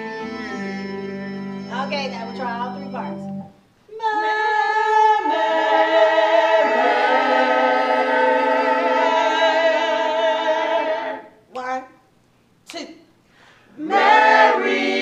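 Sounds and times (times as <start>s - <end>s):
choir singing a cappella: 4.0s - 11.4s, 13.7s - 15.0s.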